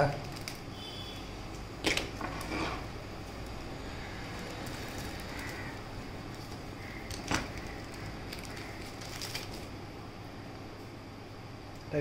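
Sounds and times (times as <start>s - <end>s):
scissors snipping plastic: 0.0s - 0.7s
plastic crinkling: 0.0s - 0.8s, 1.8s - 9.8s.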